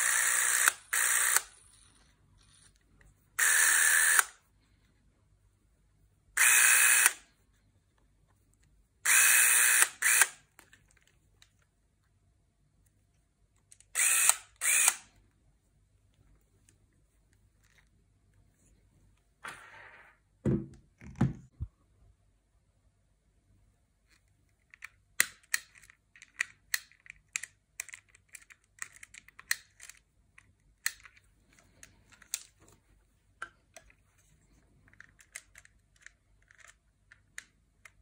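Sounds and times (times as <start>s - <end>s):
camera motor whirring: 0.0s - 1.8s, 3.4s - 4.3s, 6.4s - 7.2s, 9.1s - 10.4s, 14.0s - 15.0s.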